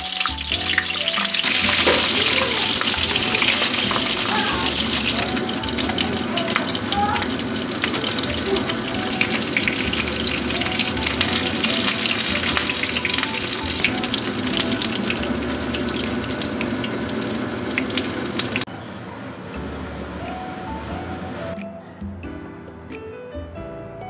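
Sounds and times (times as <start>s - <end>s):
fish sizzling in hot oil: 0.0s - 18.7s.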